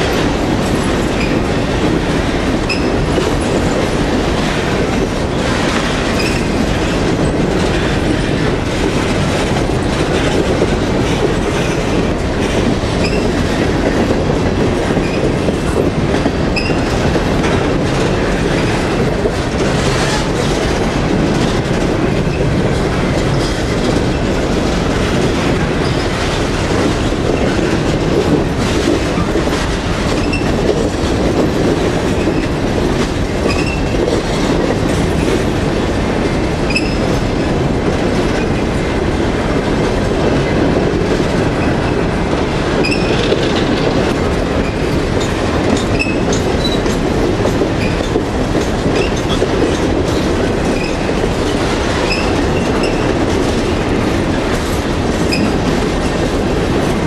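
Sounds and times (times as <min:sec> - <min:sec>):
empty freight cars rumbling and rattling: 0:00.0 - 0:57.0
steel wheels clacking over rail joints: 0:00.0 - 0:57.0
wheel squeals: 0:36.7 - 0:37.0, 0:42.8 - 0:43.2, 0:52.0 - 0:53.1, 0:55.3 - 0:55.6.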